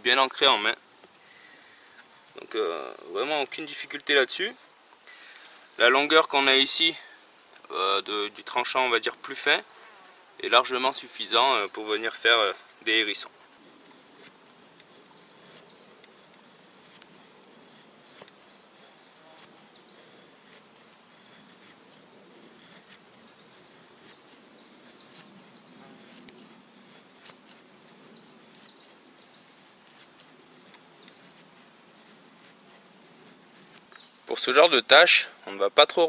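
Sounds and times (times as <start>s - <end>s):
knife scraping wood: 12.7s - 34.5s.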